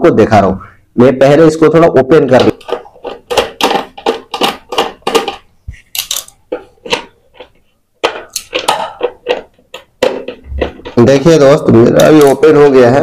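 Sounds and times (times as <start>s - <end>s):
plastic clicks and scrapes: 2.3s - 11.2s
screwdriver turning screws: 2.4s - 11.0s.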